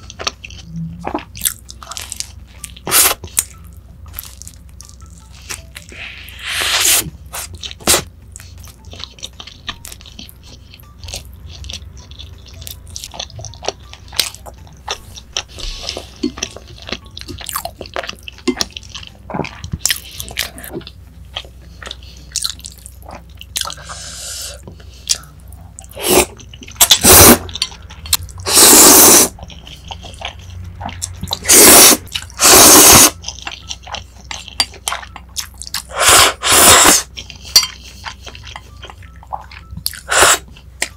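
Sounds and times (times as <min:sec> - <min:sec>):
wet chewing: 0:00.0 - 0:24.0, 0:24.6 - 0:40.9
loud noodle slurps: 0:06.4 - 0:07.0, 0:26.9 - 0:27.4, 0:28.5 - 0:29.3, 0:31.4 - 0:33.2, 0:35.9 - 0:37.1, 0:40.1 - 0:40.4.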